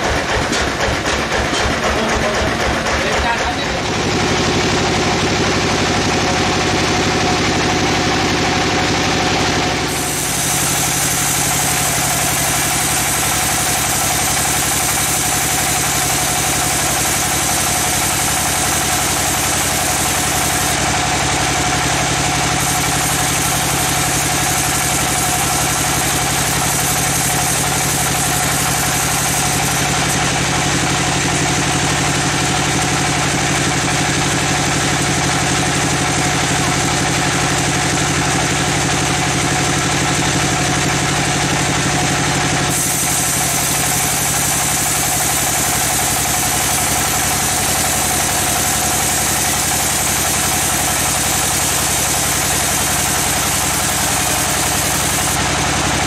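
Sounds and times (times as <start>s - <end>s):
sawmill drive drone: 1.6s - 56.0s
band saw cutting log: 9.8s - 34.7s, 42.6s - 56.0s.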